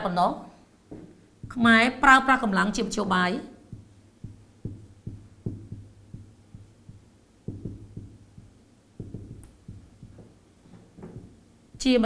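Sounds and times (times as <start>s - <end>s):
marker tapping on whiteboard: 0.9s - 2.0s, 3.7s - 12.0s.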